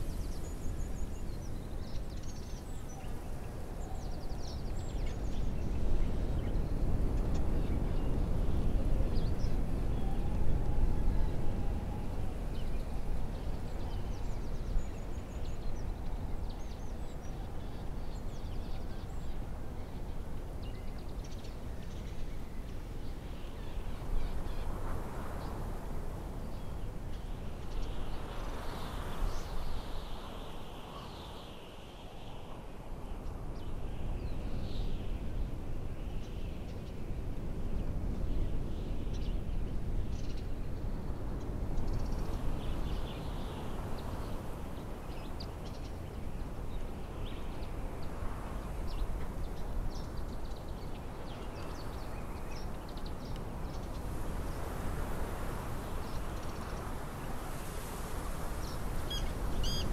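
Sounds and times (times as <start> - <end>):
low wind rumble: 0.0 - 59.9
birds chirping: 58.6 - 59.9.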